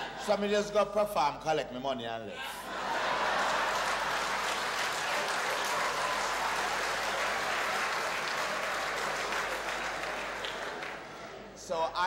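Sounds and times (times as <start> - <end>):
audience applauding: 2.8 - 11.4.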